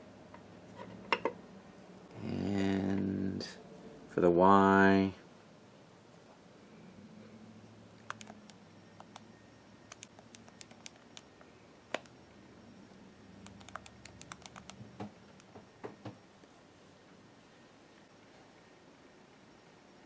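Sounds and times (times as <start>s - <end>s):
faint low hum: 0.0s - 20.0s
calculator keys clicking: 8.0s - 9.3s, 9.9s - 11.3s, 13.4s - 14.8s.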